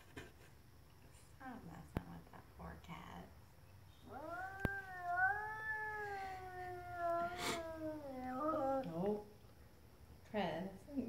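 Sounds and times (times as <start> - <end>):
cat yowling: 4.0 - 9.1.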